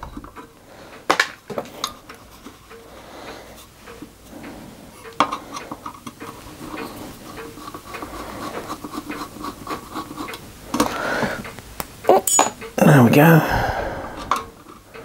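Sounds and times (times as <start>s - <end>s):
screwdriver scratching and ticking: 1.4s - 11.6s.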